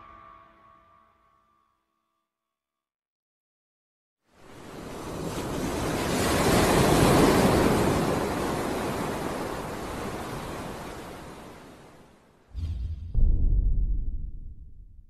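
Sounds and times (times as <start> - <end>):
ocean waves and wind: 4.3 - 12.7.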